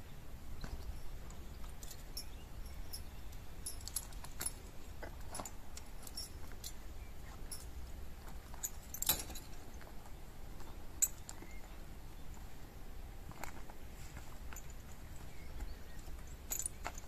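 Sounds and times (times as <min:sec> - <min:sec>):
metal bridle bit clinking: 0:00.7 - 0:09.8, 0:10.6 - 0:11.6, 0:14.3 - 0:17.0.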